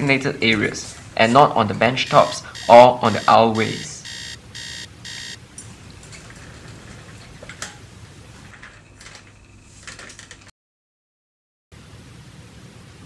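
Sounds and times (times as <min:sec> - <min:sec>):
pulsing electronic beep: 0:02.6 - 0:05.4
office chair shifting: 0:05.6 - 0:10.5.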